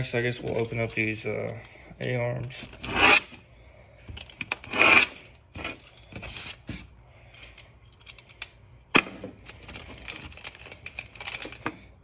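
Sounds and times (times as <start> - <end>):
plastic bags ripping and rustling: 9.4 - 11.6.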